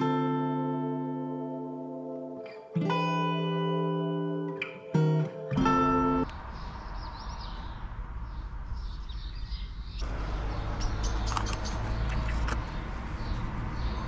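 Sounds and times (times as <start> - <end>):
small birds chirping faintly: 5.8 - 14.0
steady low rumble: 6.3 - 14.0
sharp clicks: 11.1 - 12.6.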